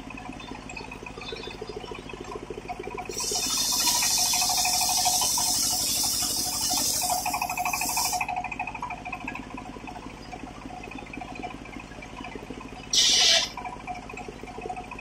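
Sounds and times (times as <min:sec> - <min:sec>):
saw drive running with even pulse: 0:00.0 - 0:15.0
saw blade hissing through wood: 0:03.1 - 0:08.2, 0:12.9 - 0:13.5.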